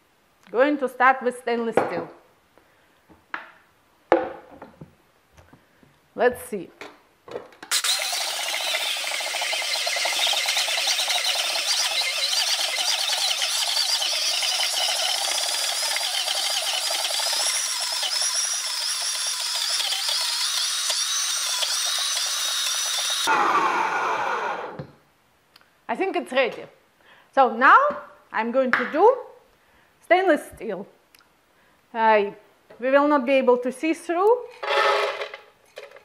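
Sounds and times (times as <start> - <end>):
blender motor buzzing: 7.7 - 24.9, 34.6 - 35.4.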